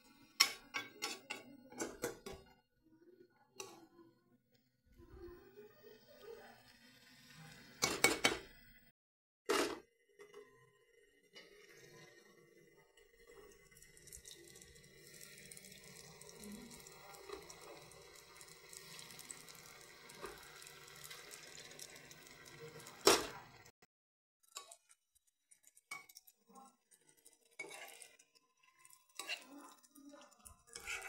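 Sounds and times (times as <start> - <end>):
hot oil sizzling in a pan: 6.0 - 7.9, 11.4 - 23.8, 24.4 - 31.0.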